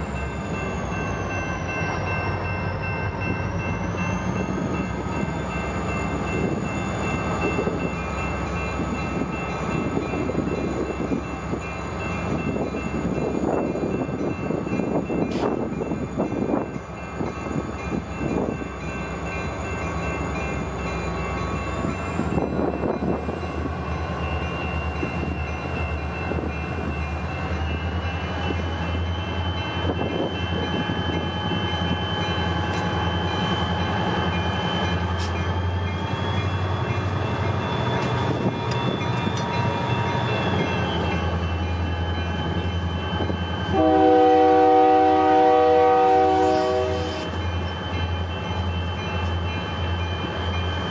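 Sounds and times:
diesel locomotive engines droning: 0:00.0 - 0:50.9
locomotive air horn blast: 0:43.7 - 0:47.2.

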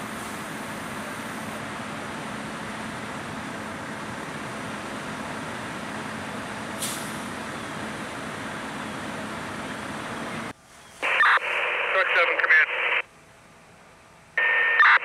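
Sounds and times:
engine or pump hum: 0:00.0 - 0:10.6.

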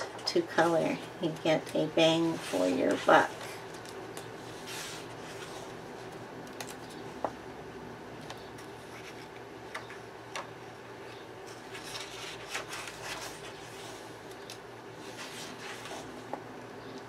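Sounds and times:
faint steady hum: 0:00.0 - 0:17.0
paper page turning: 0:11.5 - 0:16.1.

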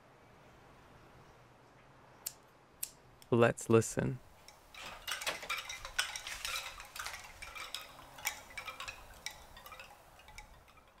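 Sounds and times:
wooden wind chime clacking: 0:04.4 - 0:11.0.

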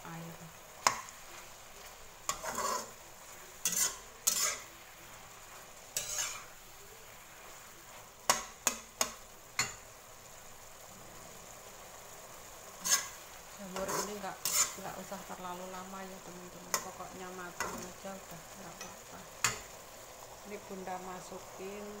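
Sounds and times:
low sizzle: 0:00.0 - 0:22.0
spatula scraping and clacking on wok: 0:00.8 - 0:04.8, 0:05.9 - 0:06.6, 0:07.9 - 0:09.8, 0:12.8 - 0:15.2, 0:16.6 - 0:18.0, 0:18.8 - 0:19.8.

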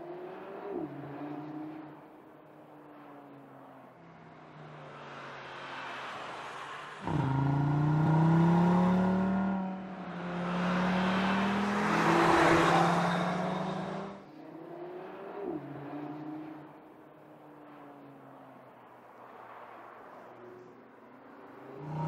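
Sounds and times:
road and wind rush: 0:00.0 - 0:22.0
car engine accelerating hard: 0:07.0 - 0:14.2.

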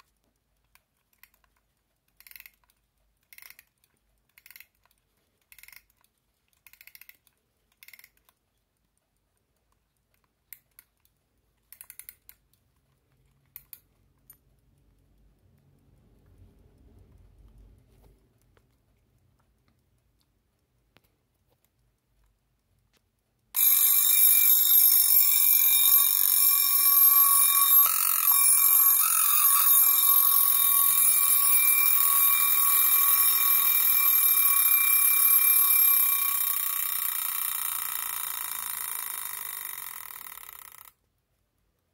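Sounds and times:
alarm clock bell ringing: 0:23.6 - 0:40.9.

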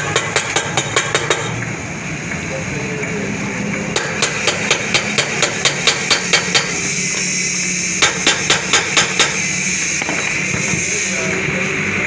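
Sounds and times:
hammer tapping metal tube: 0:00.0 - 0:01.5, 0:04.0 - 0:06.7.

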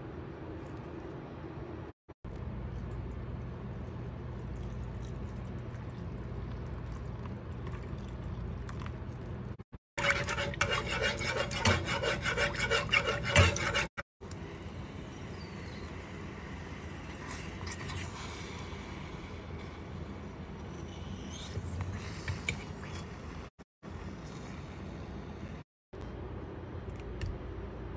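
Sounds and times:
metal spoon scraping saucepan: 0:10.0 - 0:13.9.

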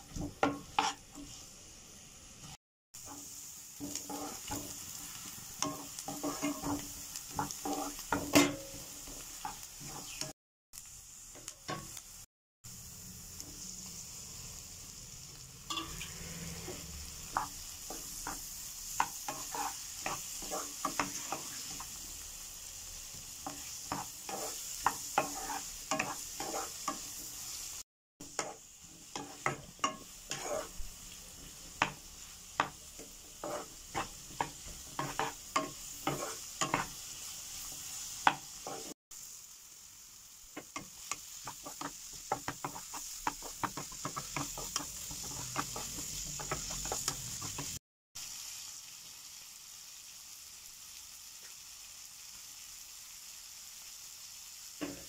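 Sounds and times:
spatula scraping and knocking pan: 0:00.0 - 0:01.4, 0:03.0 - 0:10.3, 0:15.7 - 0:22.0, 0:23.4 - 0:27.4, 0:28.3 - 0:39.0, 0:40.6 - 0:47.8
vegetables sizzling in oil: 0:00.0 - 0:55.0.

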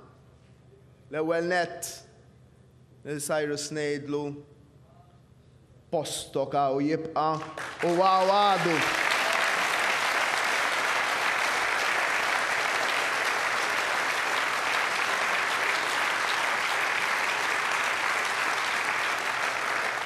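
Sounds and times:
audience applauding: 0:07.4 - 0:20.0.

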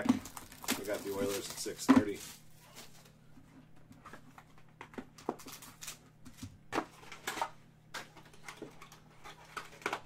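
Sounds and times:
foil wrapper crinkling: 0:00.0 - 0:03.0.

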